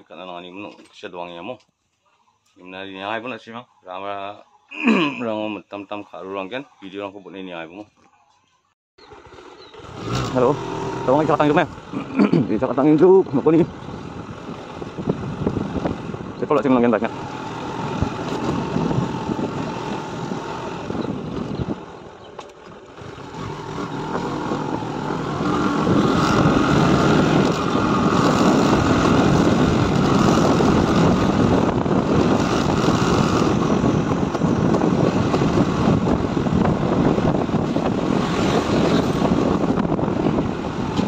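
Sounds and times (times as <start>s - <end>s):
motorcycle engine and road noise: 8.6s - 41.0s.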